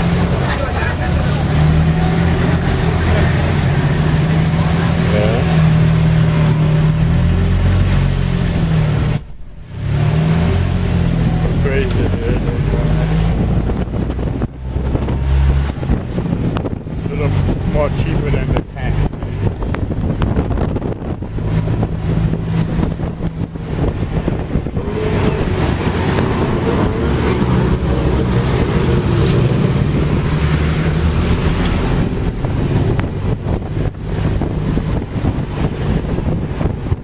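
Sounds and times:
road and wind noise: 0.0 - 37.0.

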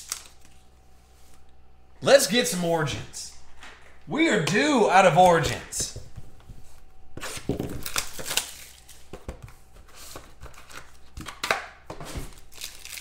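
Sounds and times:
foil wrapper crinkling: 0.0 - 0.7, 7.3 - 9.1, 12.3 - 13.0.

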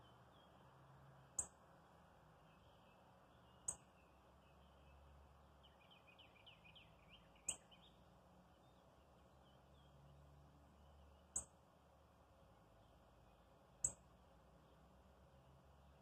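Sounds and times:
small birds twittering: 0.0 - 11.8.

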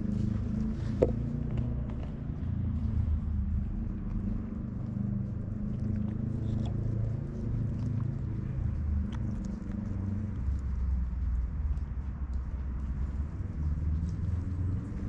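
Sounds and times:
cat purring: 0.0 - 11.3.

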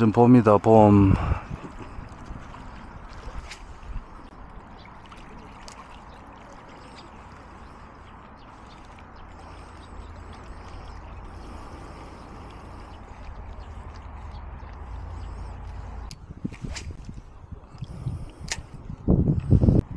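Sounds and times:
wind rumble on microphone: 1.0 - 5.0, 12.4 - 19.9
small birds chirping: 1.8 - 16.3.

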